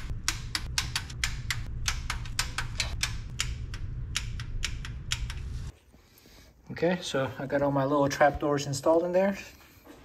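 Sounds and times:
hand ratchet clicking: 0.2s - 5.5s.

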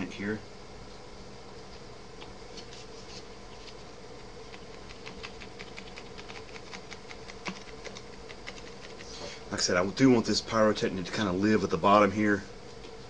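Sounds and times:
steady room hum: 0.0s - 13.0s
paper card clicking and scratching: 4.5s - 9.1s.

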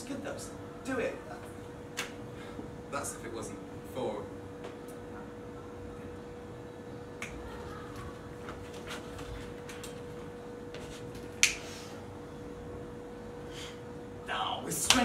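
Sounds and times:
faint steady hum: 0.0s - 15.0s
loud sharp snap: 2.0s - 2.2s, 11.4s - 11.7s.

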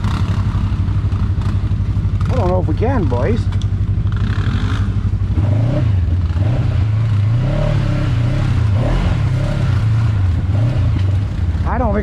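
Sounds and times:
utility vehicle engine running: 0.0s - 12.0s.

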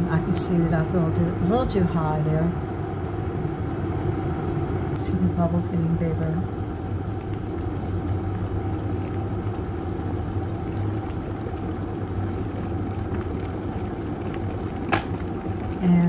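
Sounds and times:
kettle water boiling: 0.0s - 16.0s.

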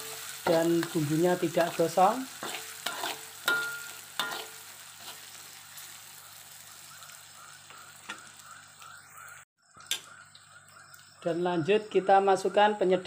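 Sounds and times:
spice paste sizzling in oil: 0.0s - 11.3s
metal spatula knocking pan: 2.4s - 4.5s.

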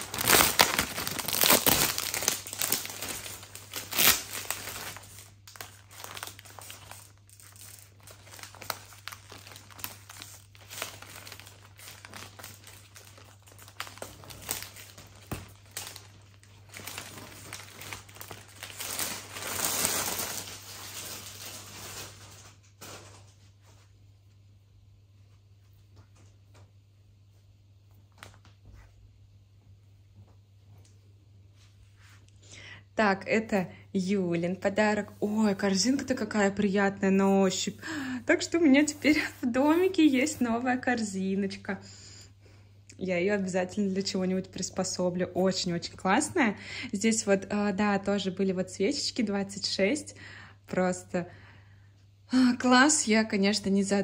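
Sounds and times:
gift packaging crinkling: 0.0s - 23.3s.

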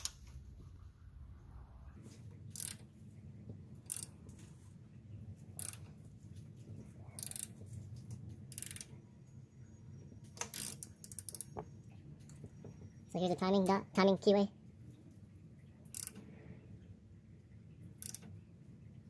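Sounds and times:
low steady hum: 0.0s - 19.0s
ratchet wrench clicking: 2.5s - 2.8s, 3.8s - 4.1s, 5.6s - 5.9s, 7.2s - 7.5s, 8.5s - 8.9s, 10.4s - 11.6s, 15.9s - 16.2s, 18.0s - 18.3s.

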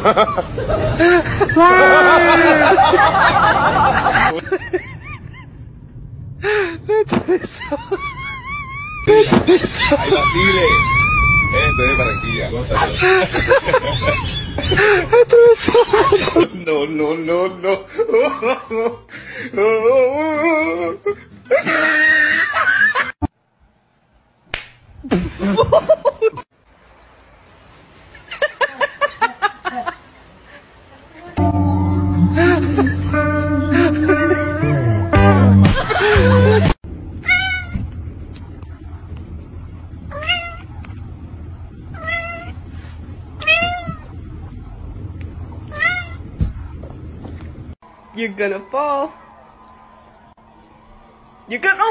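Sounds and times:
people laughing: 0.0s - 5.6s, 6.9s - 23.2s, 28.3s - 30.1s, 32.4s - 34.6s, 35.6s - 36.8s
cat meowing: 37.2s - 38.0s, 40.1s - 40.7s, 41.9s - 42.6s, 43.4s - 44.1s, 45.7s - 46.3s.

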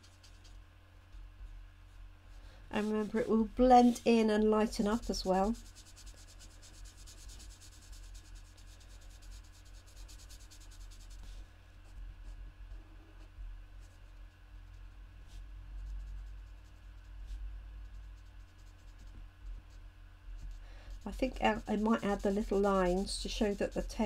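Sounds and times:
low steady hum: 0.0s - 24.0s
marker scratching on cardstock: 4.7s - 11.4s, 20.9s - 24.0s.

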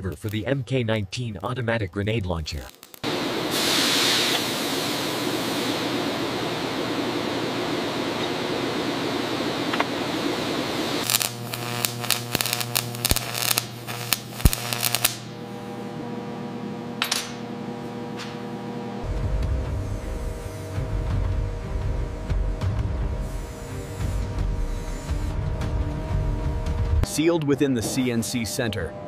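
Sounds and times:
welder crackling and snapping: 0.0s - 0.4s, 2.3s - 3.3s, 10.8s - 15.4s
steady hiss: 2.5s - 7.8s, 9.4s - 15.3s.

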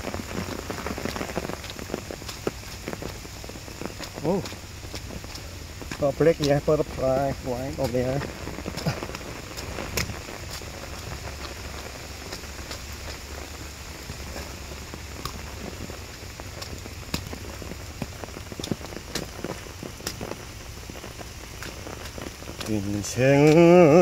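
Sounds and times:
low steady rumble: 0.0s - 24.0s
rain falling on leaves and grass: 0.0s - 24.0s
raindrops ticking close by: 0.0s - 24.0s.

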